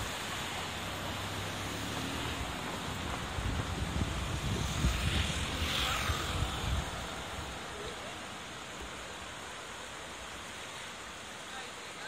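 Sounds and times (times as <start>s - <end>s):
river rushing: 0.0s - 12.0s
wind buffeting microphone: 2.2s - 7.9s.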